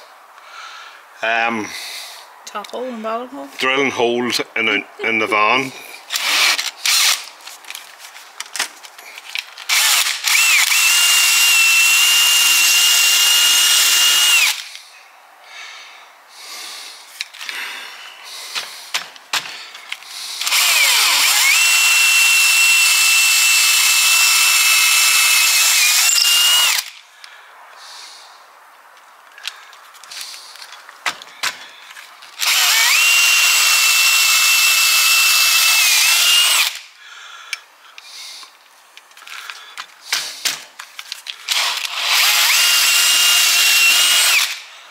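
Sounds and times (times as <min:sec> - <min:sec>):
cordless drill whining: 0:06.1 - 0:07.3, 0:09.6 - 0:14.8, 0:20.4 - 0:26.9, 0:32.4 - 0:36.8, 0:41.5 - 0:44.7
clicks and handling noises: 0:06.6 - 0:09.8, 0:37.5 - 0:42.0.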